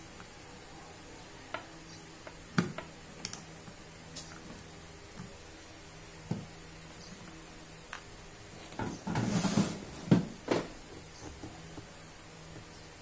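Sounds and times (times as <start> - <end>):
rustling and scraping: 8.6 - 11.9.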